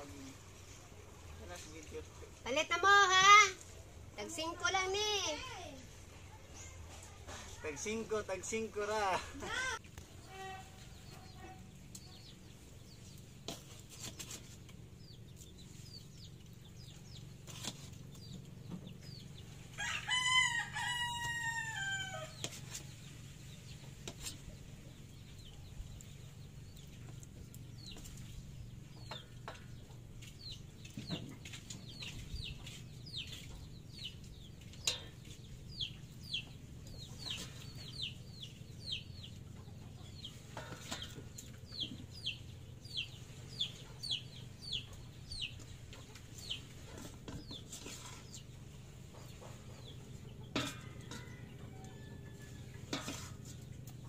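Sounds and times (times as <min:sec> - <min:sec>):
birds chirping: 0:04.2 - 0:54.0
rooster crowing: 0:19.8 - 0:22.4, 0:50.7 - 0:52.7.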